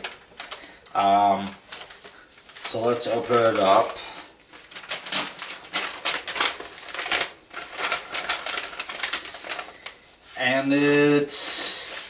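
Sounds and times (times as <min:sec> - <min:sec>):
envelope tearing and crinkling: 0:04.6 - 0:10.0.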